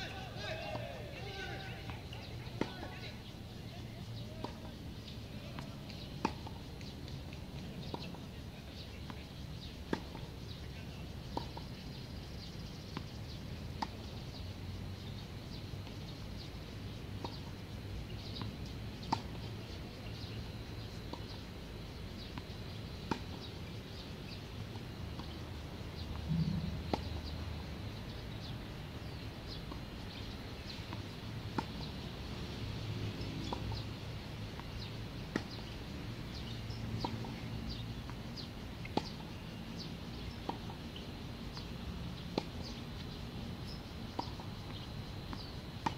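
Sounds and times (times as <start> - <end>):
birds chirping: 0.0 - 13.4, 25.1 - 31.0
low hum: 26.2 - 27.3
tennis ball pops: 35.3 - 35.6.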